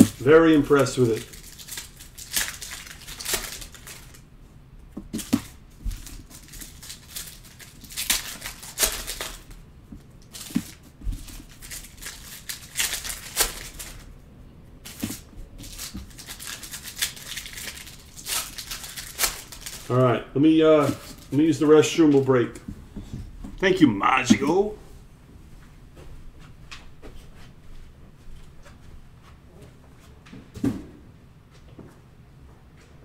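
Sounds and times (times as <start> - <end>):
cards rustling: 0.0 - 4.2, 5.1 - 9.6, 10.2 - 14.1, 14.8 - 20.0, 20.8 - 22.6
plastic wrappers crinkling: 0.0 - 4.2, 5.1 - 9.6, 10.2 - 14.1, 14.8 - 20.2, 20.8 - 22.6.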